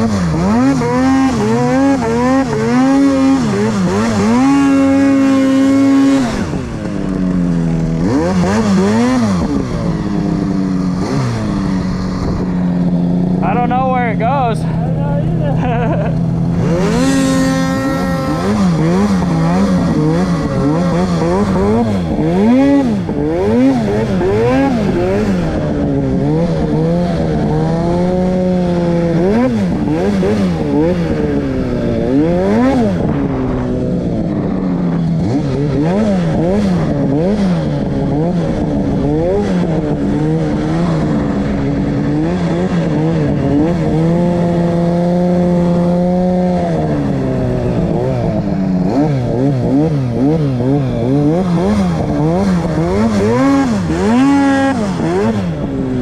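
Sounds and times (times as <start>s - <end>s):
snowmobile engine revving: 0.0s - 56.0s.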